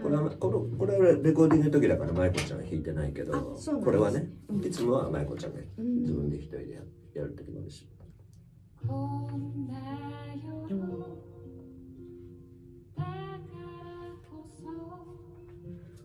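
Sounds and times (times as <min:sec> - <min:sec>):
instrumental backing music: 0:00.0 - 0:16.0
woman singing: 0:08.8 - 0:11.8, 0:13.0 - 0:15.8.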